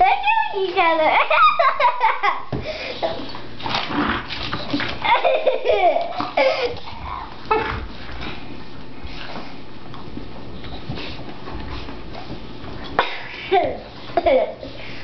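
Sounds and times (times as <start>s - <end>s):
dogs play-biting: 3.2s - 5.1s, 6.0s - 13.0s
person laughing: 5.0s - 6.9s.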